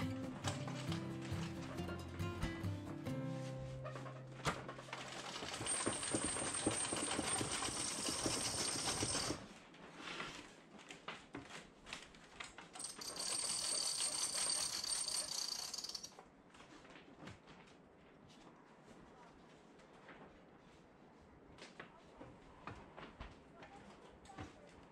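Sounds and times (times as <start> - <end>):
crank clicking rattle: 12.8 - 16.1.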